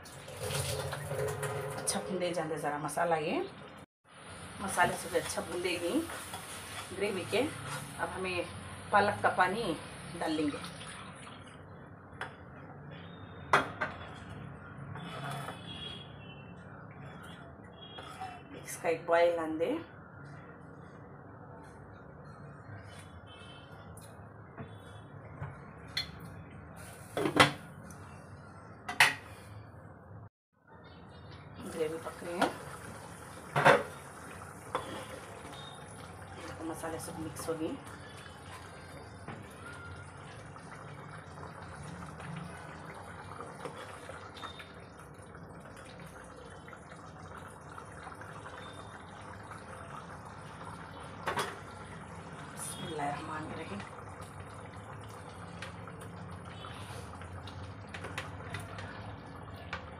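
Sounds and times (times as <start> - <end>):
gravy bubbling in a pan: 30.8 - 59.9
gravy dripping into pan: 37.8 - 59.9.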